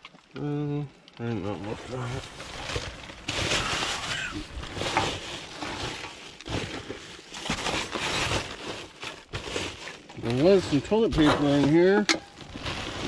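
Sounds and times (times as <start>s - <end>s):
rustling of trash bags: 1.2s - 13.0s.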